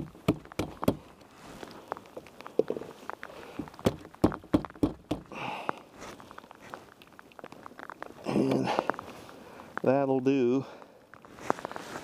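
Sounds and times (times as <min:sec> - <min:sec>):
short rustle: 0:01.0 - 0:03.8, 0:05.8 - 0:10.0, 0:11.2 - 0:12.0.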